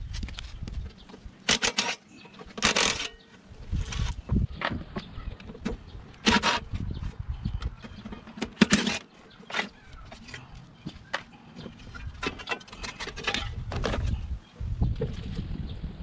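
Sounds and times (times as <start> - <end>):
plastic housing knocks and rattles: 11.1 - 14.2.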